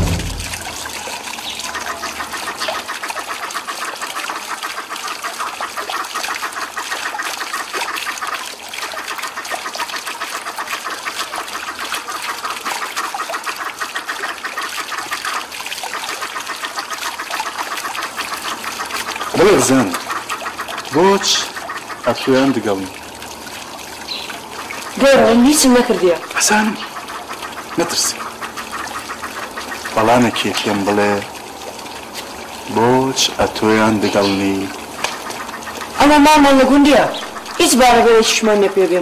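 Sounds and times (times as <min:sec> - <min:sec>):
dense rapid chirping: 0:00.0 - 0:02.6
water trickling: 0:00.0 - 0:39.0.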